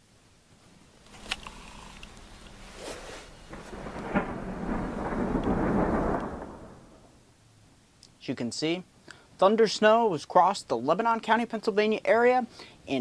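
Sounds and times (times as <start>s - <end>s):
thunder crack and rumble: 3.3s - 7.2s.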